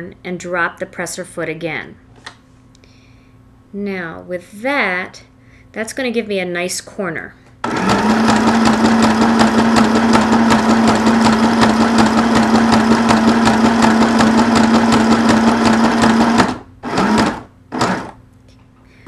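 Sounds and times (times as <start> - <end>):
sewing machine running: 7.6 - 18.2.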